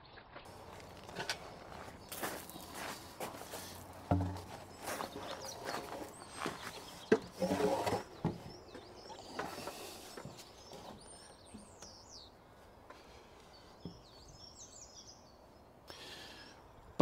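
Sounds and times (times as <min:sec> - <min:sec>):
wooden knocks: 0:00.5 - 0:11.7
wood clatter: 0:00.5 - 0:11.8
small birds chirping: 0:00.5 - 0:17.0.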